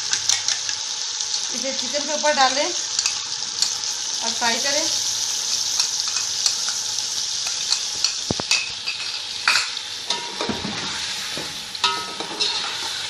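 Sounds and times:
chicken sizzling in hot oil: 0:00.0 - 0:13.0
spoon stirring in pan: 0:05.6 - 0:13.0.

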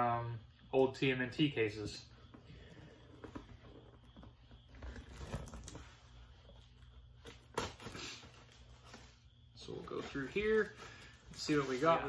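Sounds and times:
cardboard box rustling and scraping: 0:03.0 - 0:06.2, 0:10.0 - 0:12.0.

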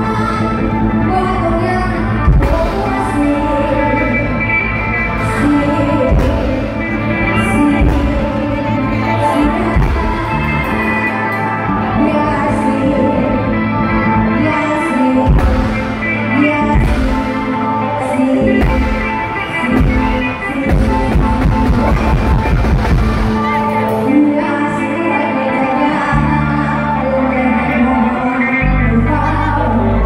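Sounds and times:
amplified live band music: 0:00.0 - 0:30.0
person singing: 0:00.0 - 0:30.0.

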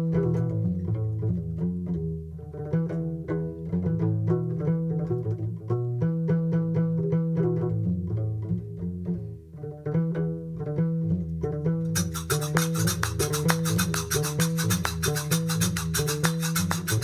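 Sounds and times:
quick run of short notes: 0:11.9 - 0:17.0.

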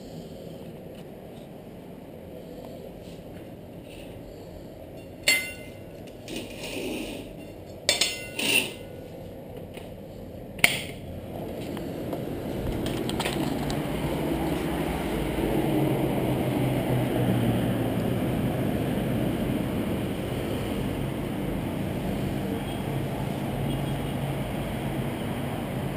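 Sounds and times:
city traffic rumble: 0:00.0 - 0:25.9
sharp knocks and clinks: 0:05.0 - 0:05.9, 0:07.4 - 0:09.0.

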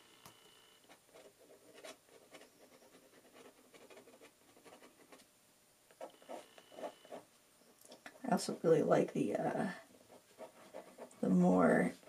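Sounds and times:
pen nib scratching on paper: 0:01.1 - 0:05.0, 0:06.0 - 0:07.2, 0:09.9 - 0:11.3.

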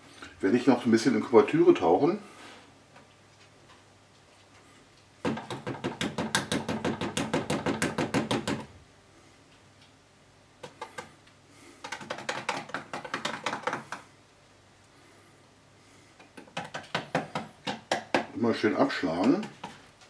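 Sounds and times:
rapid tapping on plastic tub: 0:05.2 - 0:08.7, 0:10.6 - 0:11.1, 0:11.8 - 0:14.1, 0:16.2 - 0:19.9.

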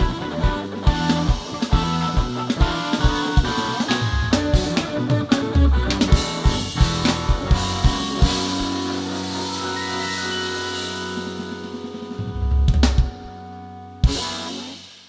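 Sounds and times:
busy drum hits: 0:00.0 - 0:08.9, 0:10.9 - 0:13.4
held chords ringing: 0:00.0 - 0:14.8
live rock band playing: 0:00.0 - 0:15.0.

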